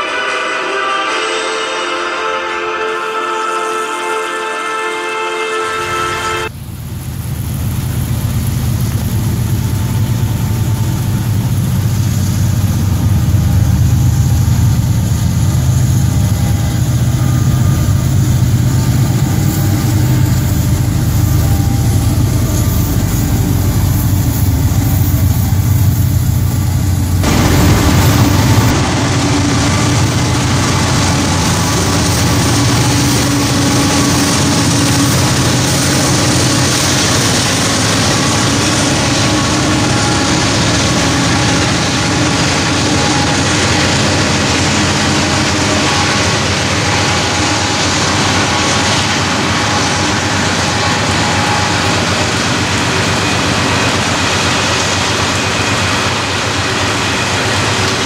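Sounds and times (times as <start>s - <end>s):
diesel locomotive engine drone: 0.0s - 58.0s
steel wheels rolling on track: 6.5s - 58.0s.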